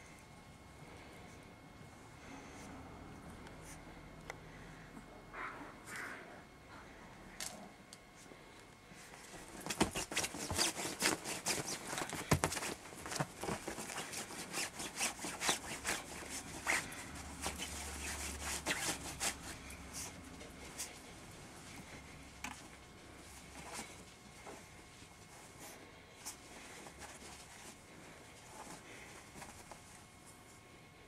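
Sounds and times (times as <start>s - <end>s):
rustling in bedding: 9.0s - 30.7s.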